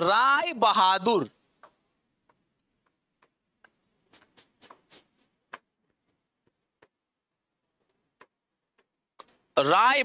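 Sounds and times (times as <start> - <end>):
marker pen writing on board: 2.3 - 7.0.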